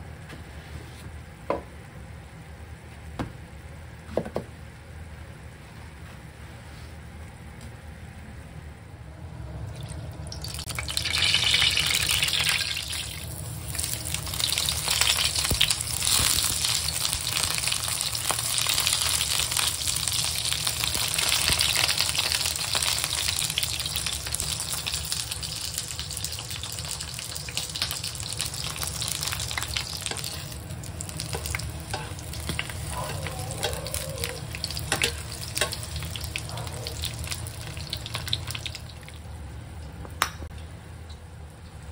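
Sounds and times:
eggplant frying in hot oil: 9.7s - 39.3s.

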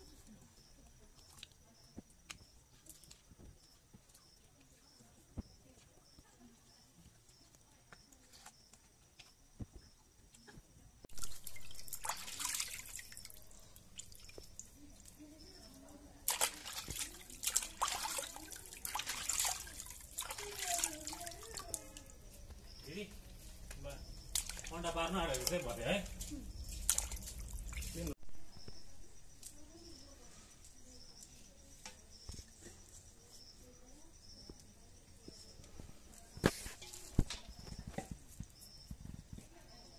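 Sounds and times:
crickets chirping: 0.0s - 39.9s
water splashing and dripping: 11.1s - 28.2s.

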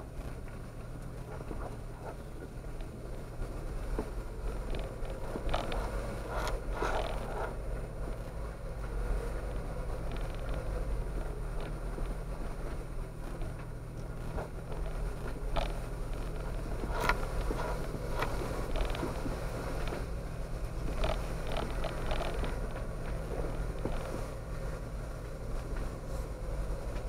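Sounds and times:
low hum of engine: 0.0s - 27.0s
sharp clicks and knocks: 3.8s - 24.4s.

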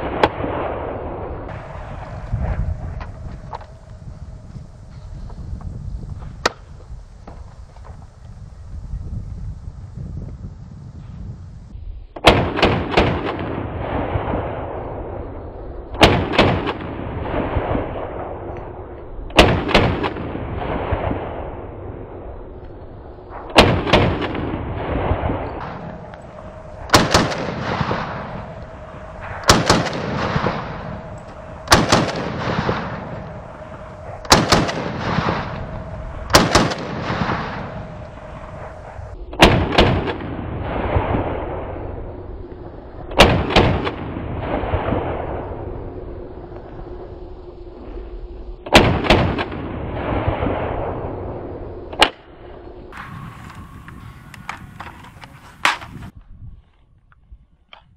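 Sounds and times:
rifle shots with echo: 12.2s - 15.2s, 15.9s - 22.3s, 23.3s - 42.0s, 43.1s - 45.7s, 48.7s - 52.3s.

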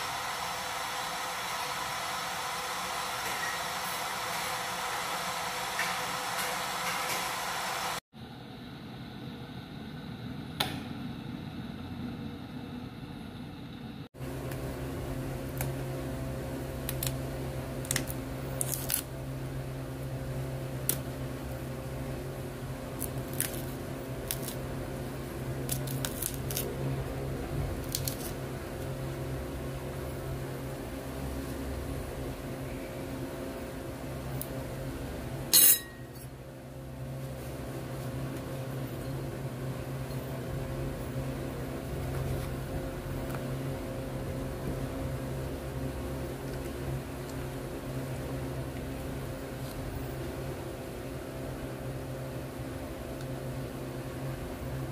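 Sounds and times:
steady low hum: 0.0s - 54.9s
metal spoon clinking ceramic bowl: 35.6s - 36.3s.

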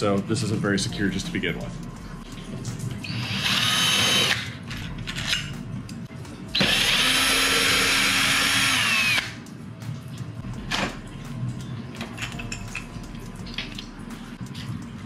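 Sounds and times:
cordless drill whining: 3.2s - 4.4s, 6.6s - 9.3s.

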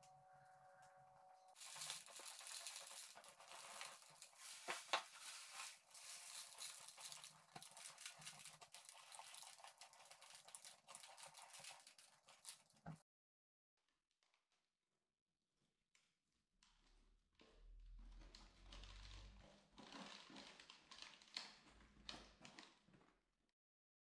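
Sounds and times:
dry leaves rustling and crackling: 1.6s - 9.6s.

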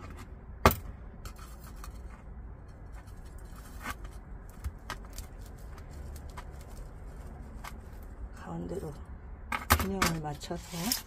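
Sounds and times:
potting mix rustling and clicking: 1.3s - 8.2s.

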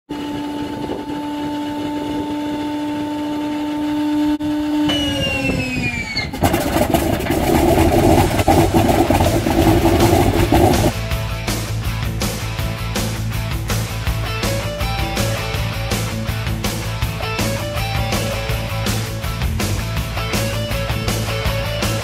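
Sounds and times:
inertia starter whining: 0.1s - 10.9s
radial engine running roughly: 0.1s - 11.0s.

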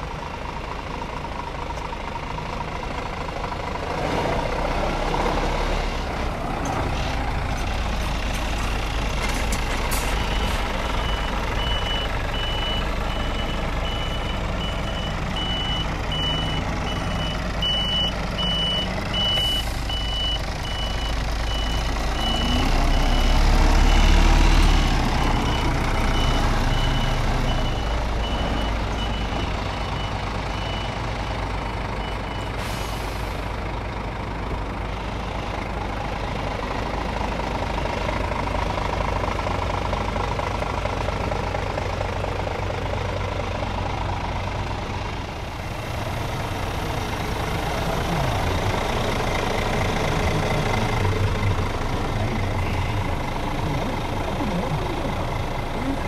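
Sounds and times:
diesel truck engine idling: 0.0s - 56.0s
reversing alarm beeps: 10.2s - 24.2s, 25.4s - 31.4s.

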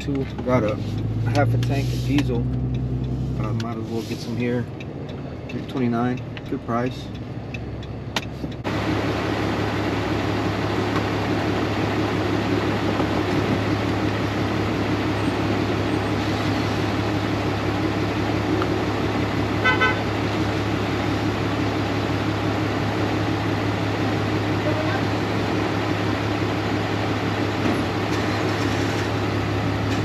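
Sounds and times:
car horn toot: 19.6s - 20.1s.

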